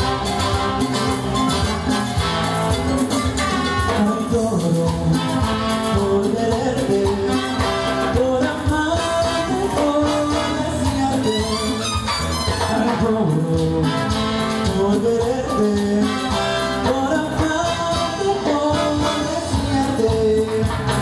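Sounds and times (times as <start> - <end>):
latin dance band playing: 0.0 - 21.0
percussion: 0.0 - 21.0
person singing: 3.7 - 12.0, 12.6 - 21.0.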